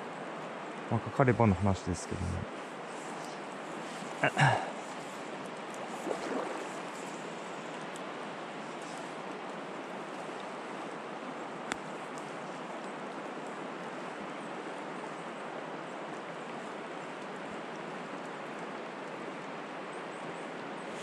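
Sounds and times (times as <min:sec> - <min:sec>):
stream rushing over stones: 0:03.8 - 0:08.6.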